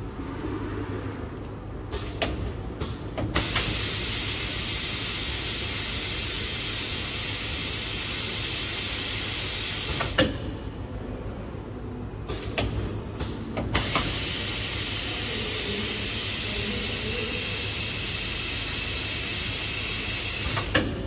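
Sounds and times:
low machine hum: 0.0 - 21.0
compressed gas hissing: 3.4 - 10.2, 13.8 - 20.8.

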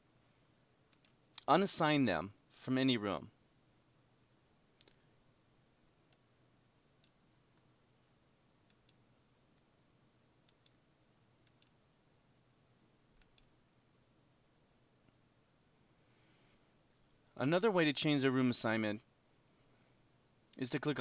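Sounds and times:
computer mouse clicking: 0.9 - 1.5, 8.7 - 9.0, 10.4 - 10.8, 11.4 - 11.8, 13.2 - 13.5.

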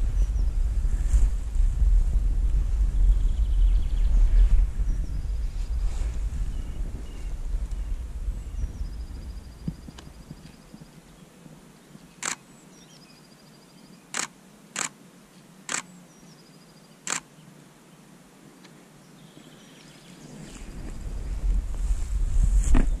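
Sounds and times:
bird trilling song: 11.9 - 14.2
camera shutter clicks: 12.2 - 12.4, 14.1 - 15.0, 15.7 - 15.9, 17.1 - 17.3.

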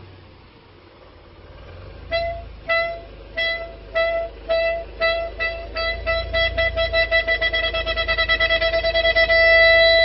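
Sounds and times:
clarinet repeating short note: 2.1 - 10.0.

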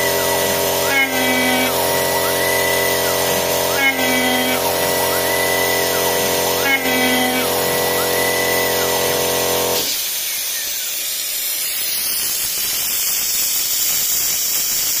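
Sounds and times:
milling spindle motor whine: 0.0 - 11.0
coolant mist spray hiss: 9.2 - 15.0.

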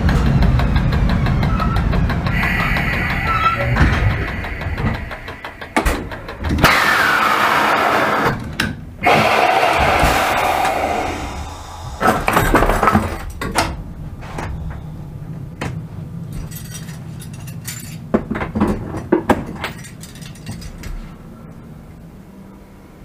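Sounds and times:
sharp clanks and clicks: 0.0 - 7.1, 15.6 - 21.1
loud rush of noise: 0.0 - 8.4, 9.0 - 15.3
steady low hum: 0.0 - 23.0.

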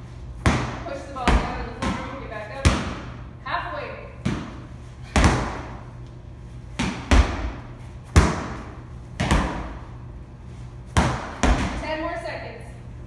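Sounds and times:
medicine balls slammed on rubber floor: 0.4 - 3.2, 4.2 - 5.9, 6.7 - 10.0, 10.9 - 11.9.

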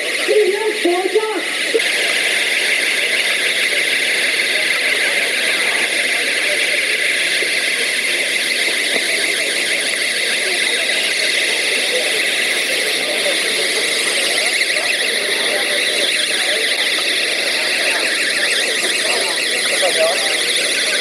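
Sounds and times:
alarms warbling shrill tone: 5.6 - 21.0.

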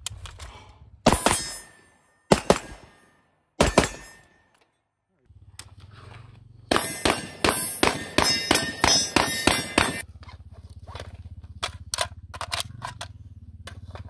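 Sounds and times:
steel targets ringing: 1.1 - 4.7, 6.7 - 10.0
rifle fired rapidly: 2.3 - 3.0, 3.6 - 4.2, 6.7 - 10.0
magazine metallic clicks: 11.6 - 13.1.

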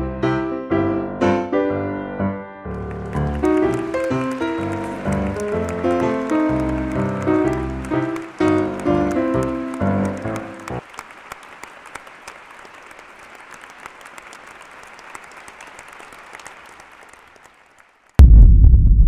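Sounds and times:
music: 0.0 - 10.8
applause: 2.7 - 18.2
loud deep rumble: 18.2 - 19.0.

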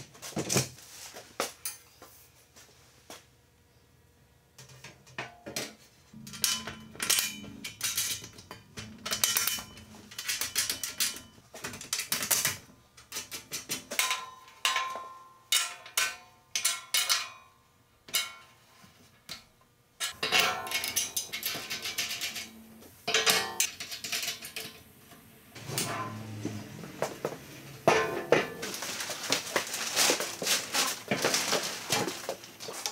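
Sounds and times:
steel legs knocking together: 25.6 - 32.4.

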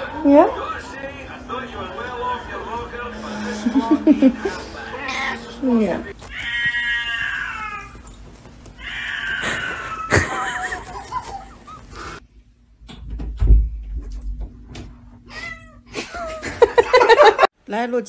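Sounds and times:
cat yowling: 4.9 - 5.6, 6.2 - 8.1, 8.8 - 10.4.

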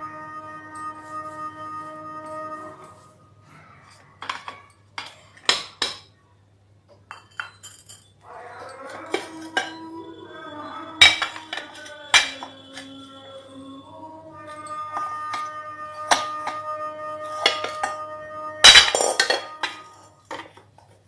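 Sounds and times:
plates clinking: 3.9 - 6.1, 7.0 - 13.6, 14.4 - 20.7.

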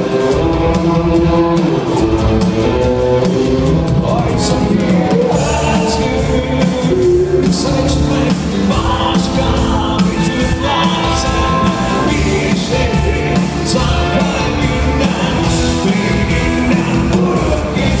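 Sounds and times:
live rock band: 0.0 - 18.0
man singing: 0.0 - 18.0.

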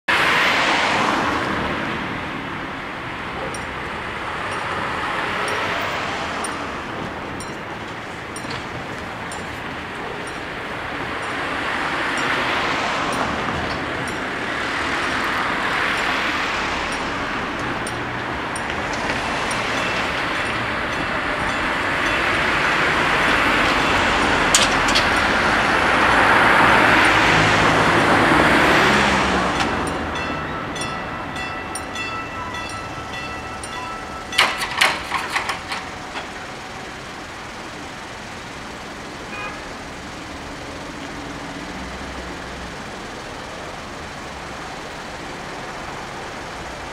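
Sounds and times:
cars driving past: 0.1 - 46.9
crossing warning bell ringing: 2.2 - 46.9
sharp metal clanks: 30.8 - 36.5.

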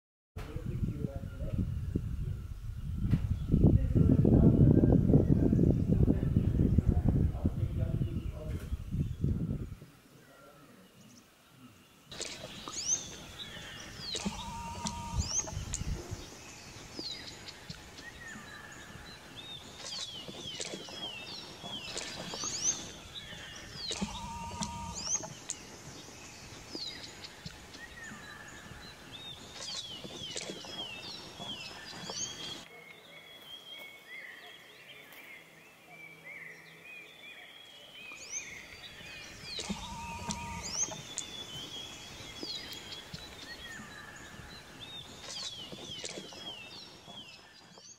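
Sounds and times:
songbirds singing: 0.4 - 47.9
lower bird call: 12.1 - 32.6, 38.4 - 47.9.

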